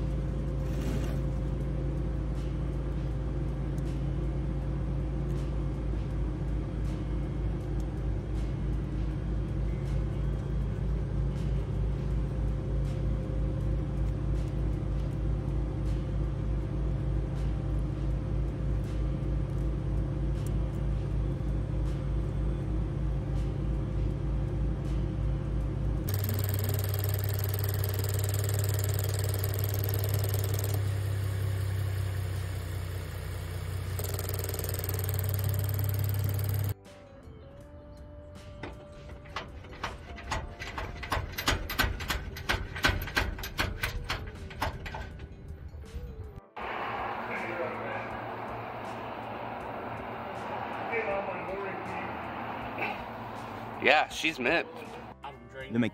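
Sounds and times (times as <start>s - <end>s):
engine humming: 26.1s - 36.8s, 46.6s - 55.2s
deeper engine idling: 46.6s - 55.2s.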